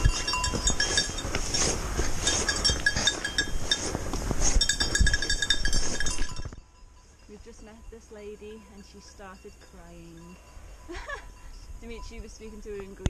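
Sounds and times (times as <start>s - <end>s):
goat bells clinking and jingling: 0.0s - 13.0s.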